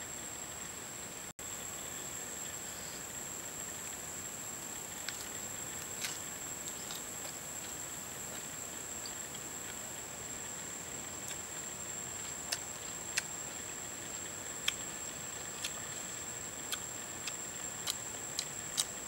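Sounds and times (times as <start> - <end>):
forest insects droning: 0.0 - 19.0.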